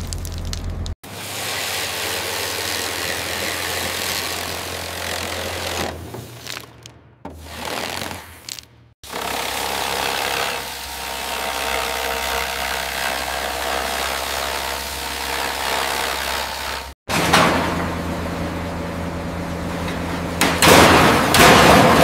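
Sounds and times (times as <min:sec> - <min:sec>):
angle grinder cutting metal: 0:01.1 - 0:05.9, 0:07.4 - 0:17.0.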